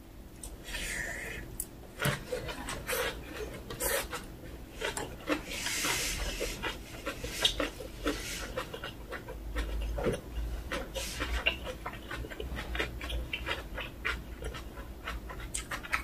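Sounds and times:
close chewing mouth sounds: 0:00.4 - 0:16.0
breathy hiss: 0:00.6 - 0:01.5.

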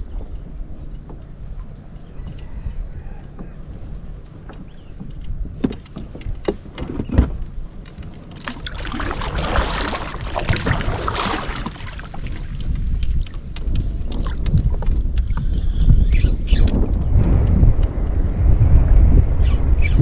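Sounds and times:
wind rumbling on microphone: 0:00.0 - 0:20.0
loud water splashing: 0:08.4 - 0:12.7.

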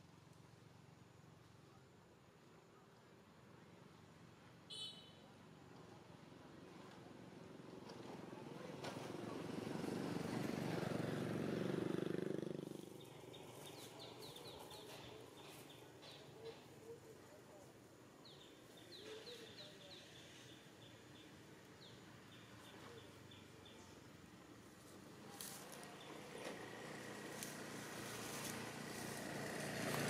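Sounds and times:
vehicle engine droning: 0:08.0 - 0:16.4, 0:22.4 - 0:30.0
birds chirping: 0:12.7 - 0:24.2.

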